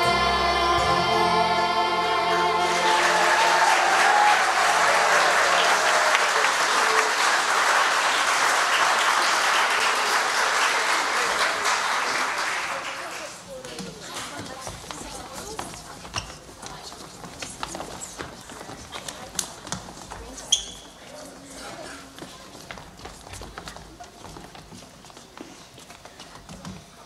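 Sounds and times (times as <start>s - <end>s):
children singing with music: 0.0s - 3.7s
audience applause: 2.6s - 13.6s.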